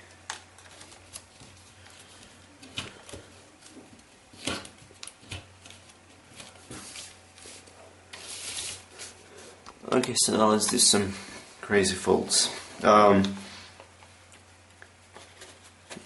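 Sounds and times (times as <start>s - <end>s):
paper rustling and crinkling: 0.2s - 9.6s, 15.0s - 16.0s.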